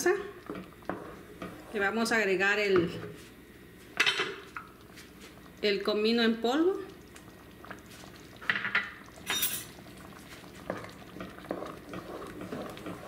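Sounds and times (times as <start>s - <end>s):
wooden spatula stirring salsa: 0.4s - 2.0s, 9.0s - 13.0s.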